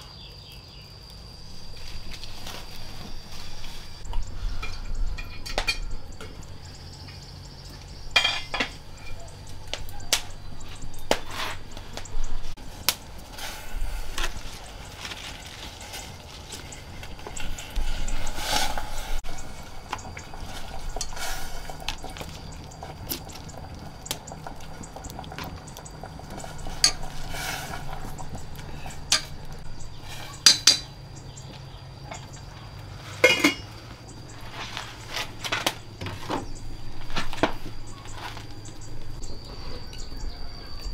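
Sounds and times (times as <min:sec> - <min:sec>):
utensils clinking against pots: 0:03.3 - 0:12.0, 0:14.1 - 0:23.6, 0:25.4 - 0:31.0, 0:33.1 - 0:33.8.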